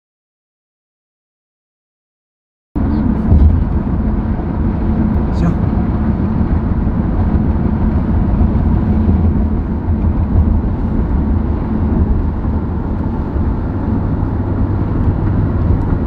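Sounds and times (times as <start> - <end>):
car driving at highway speed: 2.8 - 16.0.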